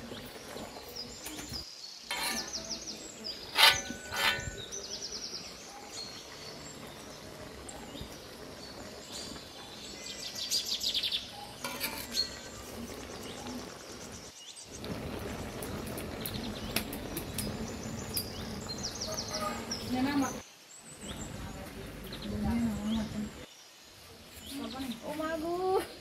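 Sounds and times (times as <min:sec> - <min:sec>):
small birds chirping: 0:00.0 - 0:26.0
metal ladle clanking on wok: 0:02.1 - 0:02.7, 0:03.5 - 0:05.0, 0:11.6 - 0:12.5
vegetables stirred scraping: 0:02.1 - 0:02.7, 0:03.4 - 0:04.8, 0:11.6 - 0:14.0.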